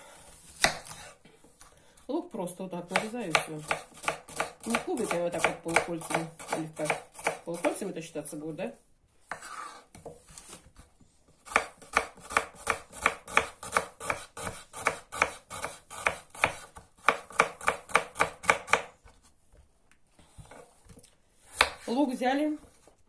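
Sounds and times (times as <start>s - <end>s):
knife chopping onion on wooden board: 0.2s - 1.2s, 2.9s - 7.9s, 9.3s - 19.1s, 21.5s - 21.9s.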